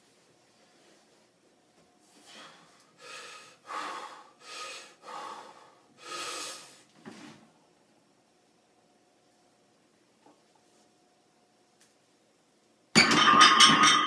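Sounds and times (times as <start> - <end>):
person breathing forcefully: 2.2 - 6.9.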